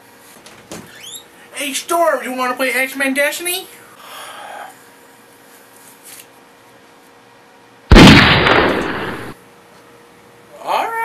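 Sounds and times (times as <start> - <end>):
loud gunshot: 7.9 - 9.4.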